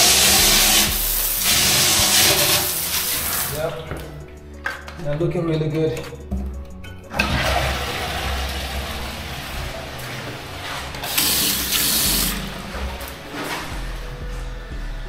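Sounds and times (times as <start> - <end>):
toilet flushing: 0.0 - 3.7, 7.1 - 13.8.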